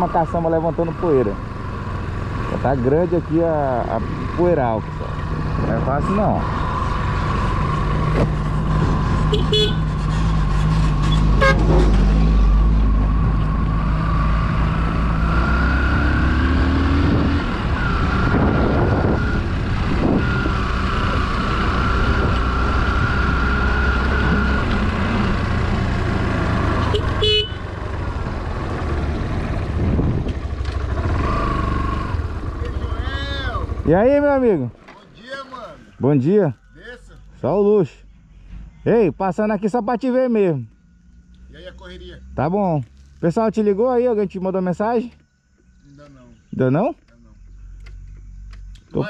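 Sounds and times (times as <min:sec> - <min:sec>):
vehicle engine and tyre noise: 0:00.0 - 0:49.0
short horn toots: 0:09.3 - 0:10.0, 0:11.1 - 0:11.8, 0:26.8 - 0:27.6.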